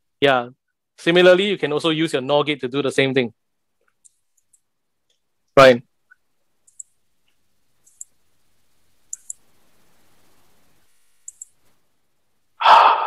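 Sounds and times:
mouse button clicking: 6.7s - 7.0s, 7.8s - 8.2s, 9.1s - 9.4s, 11.2s - 11.6s.

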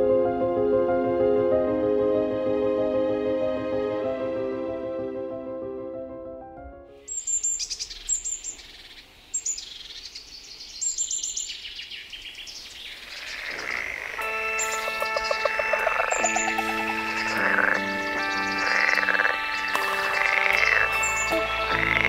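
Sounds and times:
soft music: 0.0s - 7.1s, 14.2s - 22.0s
songbirds chirping and trilling: 7.0s - 22.0s.

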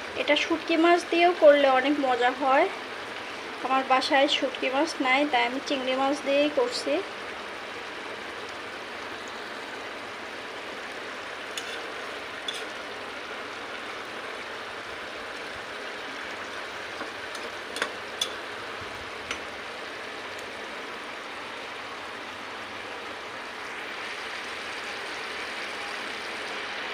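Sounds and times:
curry bubbling and sizzling: 0.0s - 26.9s
spoon clicking against a pot: 17.3s - 18.4s.

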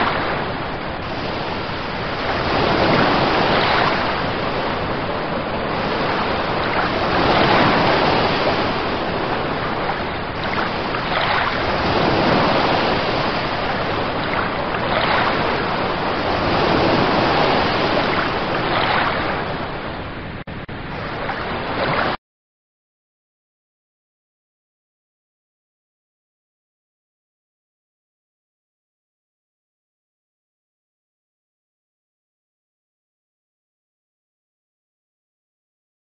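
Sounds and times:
ocean waves washing in: 0.0s - 22.2s.

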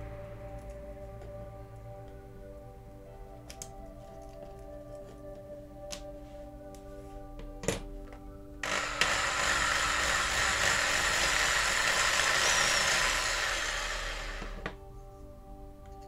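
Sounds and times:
hand drill boring into metal: 8.6s - 14.8s.

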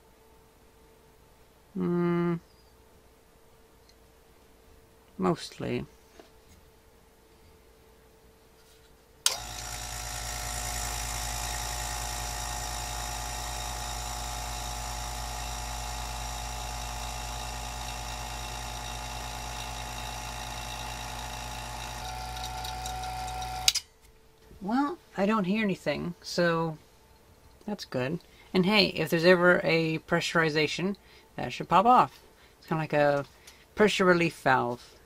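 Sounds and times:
vacuum pump humming and whining: 9.2s - 24.8s.

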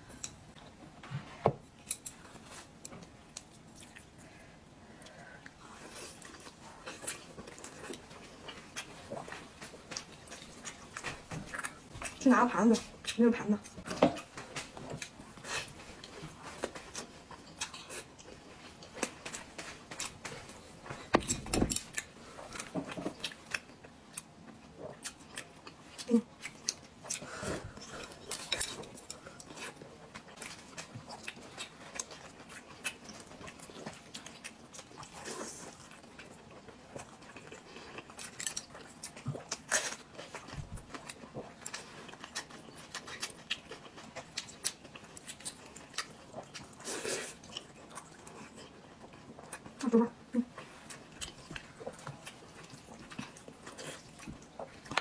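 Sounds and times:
chewing and lip smacks: 12.8s - 55.0s.

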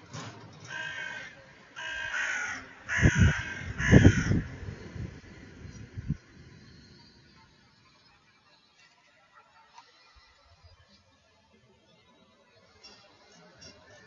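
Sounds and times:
crow cawing: 0.6s - 4.6s.

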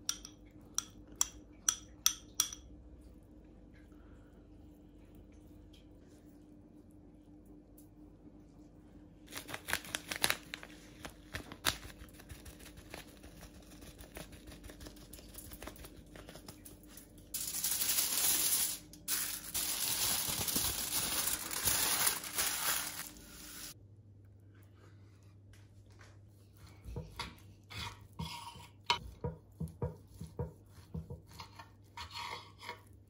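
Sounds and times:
aluminium foil crinkling: 9.3s - 23.8s.

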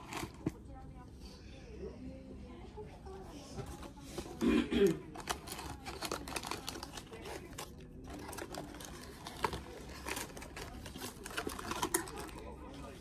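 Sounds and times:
snack packaging crinkling: 5.1s - 13.0s.

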